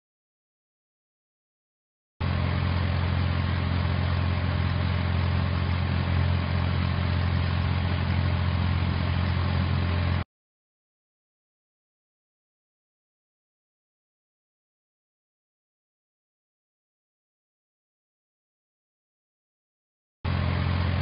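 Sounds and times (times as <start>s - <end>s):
engine idling: 2.2s - 10.2s, 20.3s - 21.0s.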